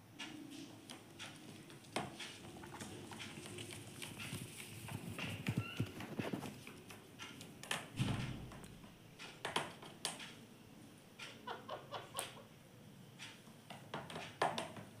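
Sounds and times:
parakeet tapping and clicking: 8.6s - 10.4s.

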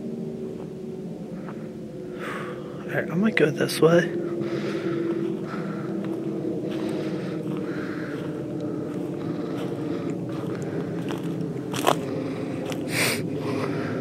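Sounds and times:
steady low hum: 0.0s - 14.0s
footsteps crunching on forest floor: 4.5s - 13.8s.

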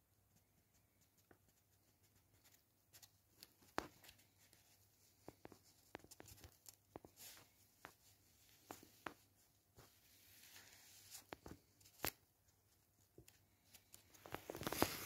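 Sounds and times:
paper and banknotes rustling: 13.6s - 15.0s.

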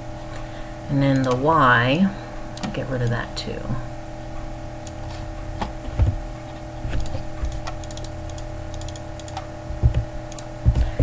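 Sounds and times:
electrical hum: 0.0s - 11.0s
mouse and keyboard clicks: 6.9s - 9.4s.

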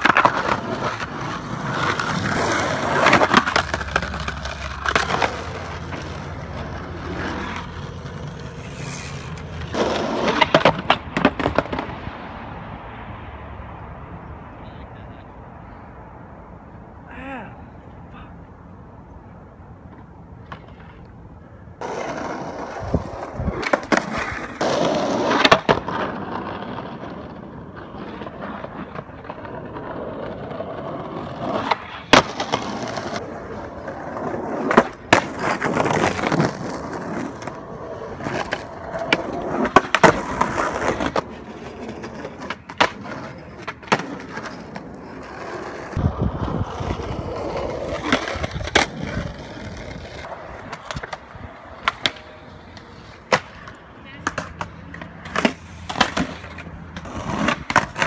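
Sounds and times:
skateboard deck clacking on ground: 0.0s - 12.0s, 33.8s - 46.1s, 46.7s - 58.0s
skateboard wheels rolling: 0.0s - 14.0s, 18.9s - 58.0s.

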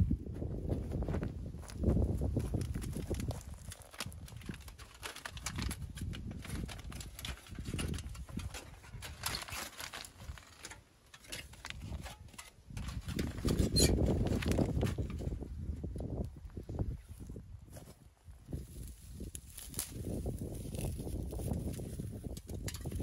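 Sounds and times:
leaves and stones crunching underfoot: 0.8s - 23.0s
aluminium foil crinkling: 2.5s - 15.3s.

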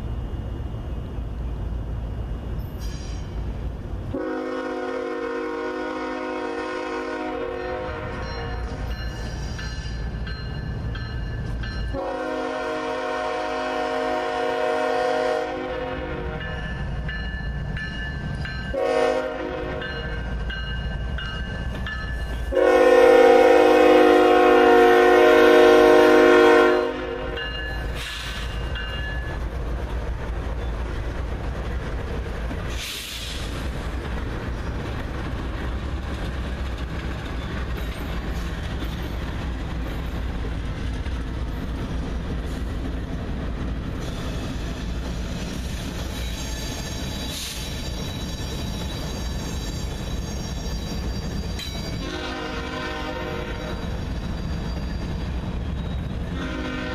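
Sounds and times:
train engines and wheels rumbling: 0.0s - 56.9s
locomotive horn blasts: 4.1s - 8.7s, 11.9s - 16.6s, 18.7s - 20.1s, 22.5s - 27.4s, 52.0s - 53.8s, 56.4s - 56.9s.

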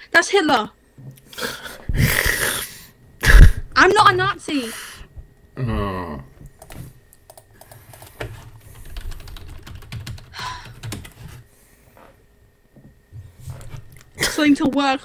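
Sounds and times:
computer keyboard typing: 6.6s - 11.4s.

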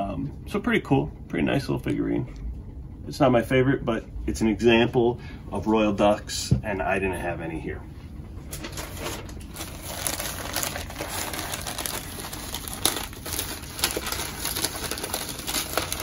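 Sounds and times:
packing paper crinkling: 8.5s - 16.0s.

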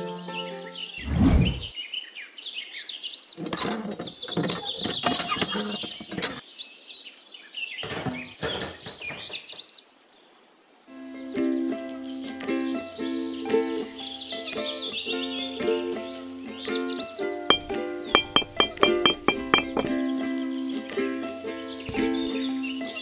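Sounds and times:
music: 0.0s - 1.0s, 10.9s - 23.0s
birds chirping: 0.7s - 10.6s, 13.2s - 20.8s
clicks and knocks: 17.5s - 19.9s
dull thump: 17.5s - 19.9s.

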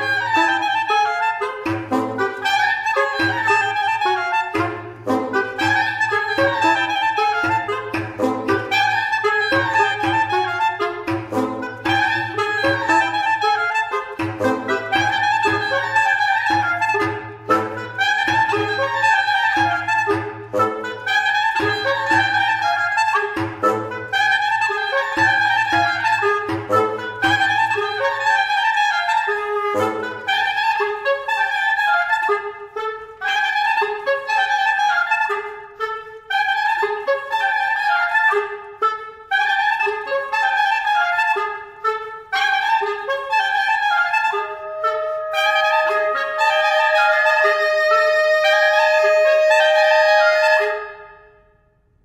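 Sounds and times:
reed quintet playing: 0.0s - 51.4s.

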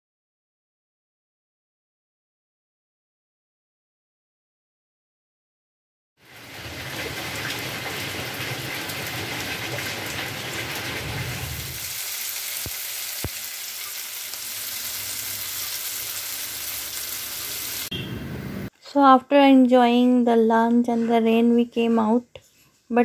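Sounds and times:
food sizzling in hot oil: 6.2s - 17.9s
rain falling: 6.2s - 17.9s.

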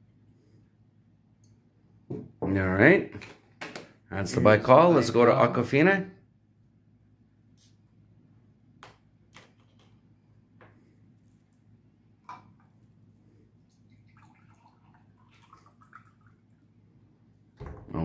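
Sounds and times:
water pouring into glass: 13.7s - 16.7s.

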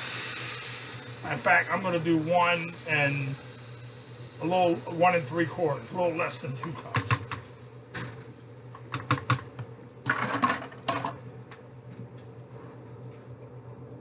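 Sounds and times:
broth sizzling in hot pan: 0.0s - 8.9s
steady low hum: 0.0s - 14.0s
plastic cup knocking against bowl: 6.9s - 7.4s, 8.9s - 11.0s.

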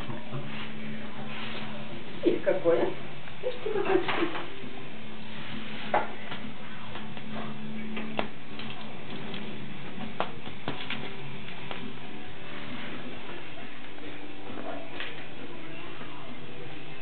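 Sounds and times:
low steady hum: 0.0s - 17.0s
taps and clicks on tile floor: 8.0s - 11.8s.

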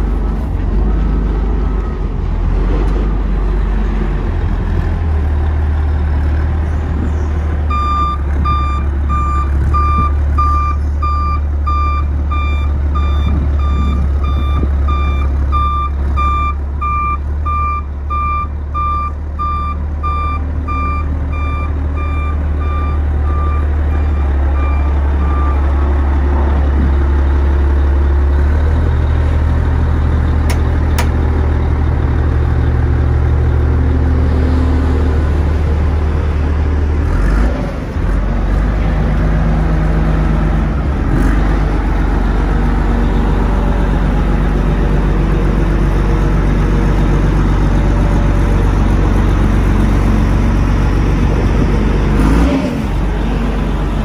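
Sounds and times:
diesel engine running: 0.0s - 54.0s
reversing alarm beeping: 7.7s - 25.8s.

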